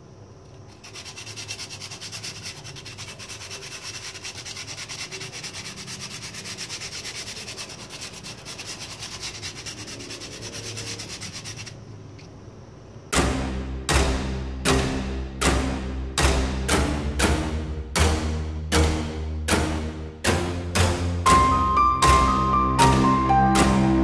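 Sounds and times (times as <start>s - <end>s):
styrofoam being sanded by hand: 0.7s - 11.8s.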